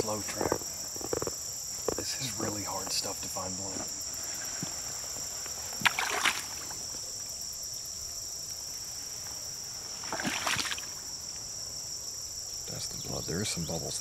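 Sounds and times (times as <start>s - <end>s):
rustling and sloshing through grass: 0.0s - 7.4s, 8.4s - 11.6s
insects chirring: 0.0s - 14.0s.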